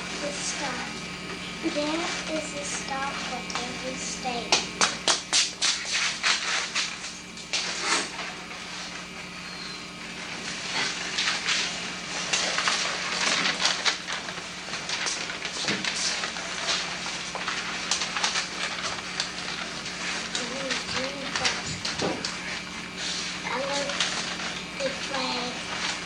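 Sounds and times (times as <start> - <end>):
steady low hum: 0.0 - 26.0
children clapping and knocking: 4.5 - 5.5.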